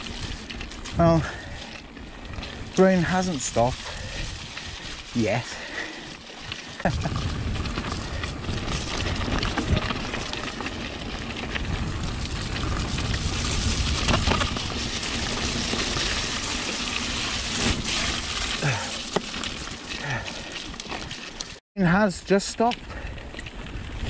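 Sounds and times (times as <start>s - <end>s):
bike tyre rumble: 0.0s - 21.6s, 22.7s - 24.0s
wind rushing on microphone: 6.8s - 10.1s.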